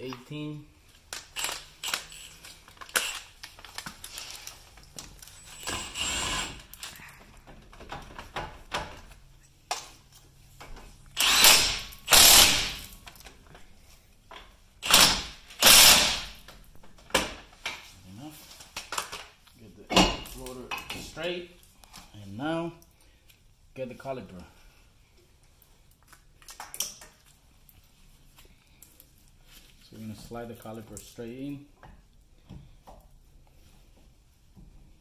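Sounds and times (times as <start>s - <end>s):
impact gun bursts: 11.2s - 12.9s, 14.8s - 16.4s.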